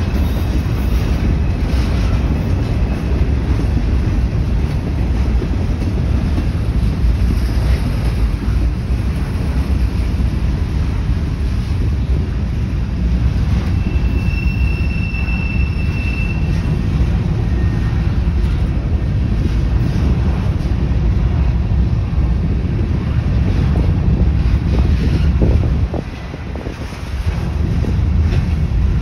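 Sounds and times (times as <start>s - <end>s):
train wheels rumbling on rail: 0.0s - 29.0s
high wheel squeal: 13.6s - 18.1s.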